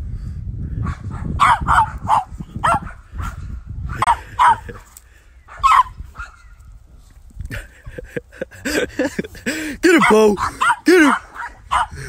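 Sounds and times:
small dog yapping: 0:05.5 - 0:06.5, 0:10.0 - 0:12.0.

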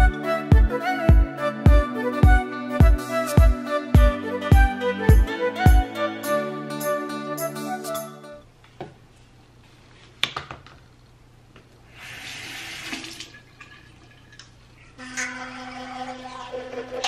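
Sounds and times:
faucet running into sink: 0:12.0 - 0:17.0.

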